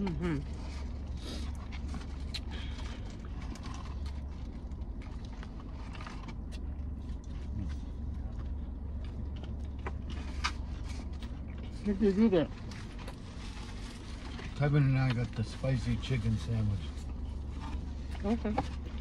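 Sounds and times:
low hum inside car: 0.0 - 19.0
person chewing food: 0.4 - 11.8.

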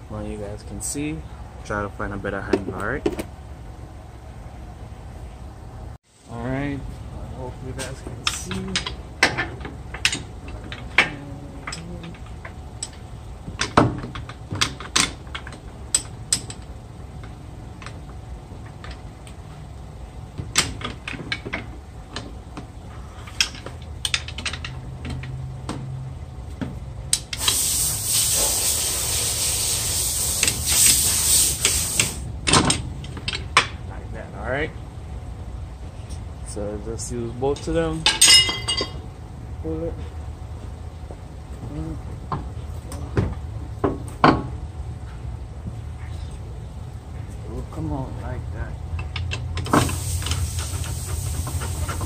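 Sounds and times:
pry tool metal clicks and knocks: 8.2 - 13.0, 13.6 - 16.6
loud steady hiss: 27.2 - 32.3, 49.7 - 52.0.

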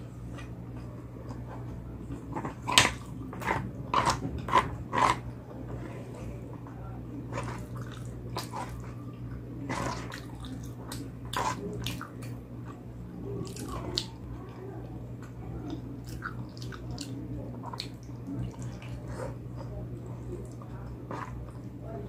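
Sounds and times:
wet chewing and slurping: 7.3 - 12.8, 15.6 - 21.7.

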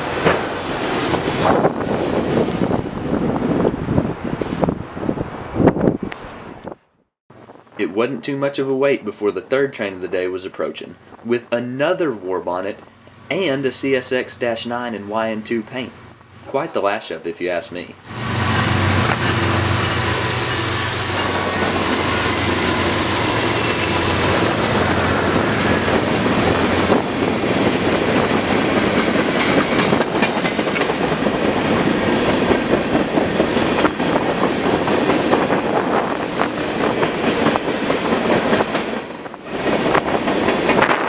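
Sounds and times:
locomotive engine hum: 18.0 - 38.2
train wheels clacking on rails: 18.3 - 41.0.

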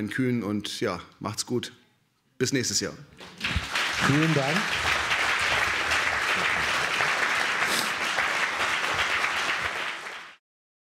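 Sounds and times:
audience applauding: 3.2 - 10.4.

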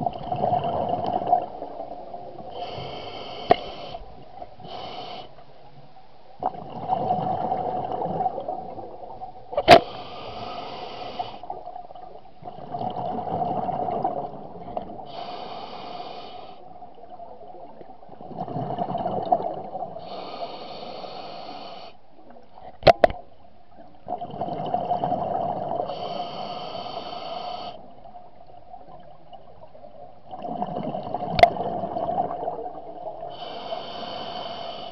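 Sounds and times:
diver breathing through regulator: 2.5 - 5.4, 9.7 - 11.5, 15.0 - 16.7, 20.0 - 22.0, 25.8 - 27.9, 33.3 - 34.9.

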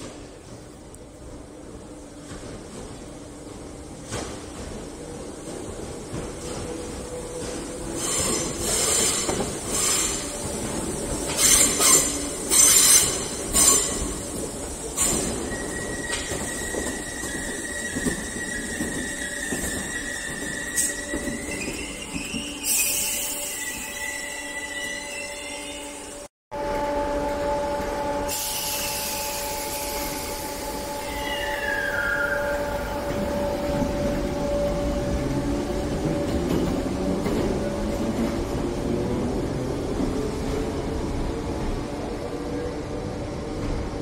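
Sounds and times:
train wheels squealing: 7.4 - 26.2, 28.3 - 35.0.

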